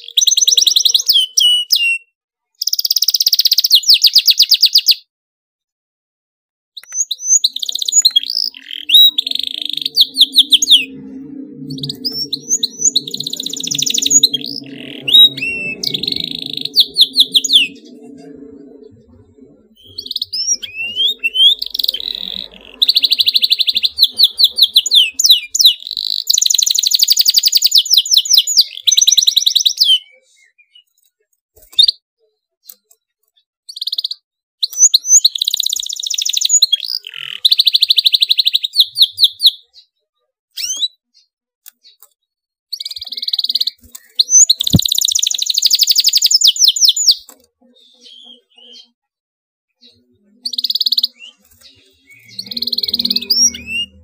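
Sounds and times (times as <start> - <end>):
canary singing: 6.8 - 30.1, 42.7 - 49.0, 49.8 - 54.0.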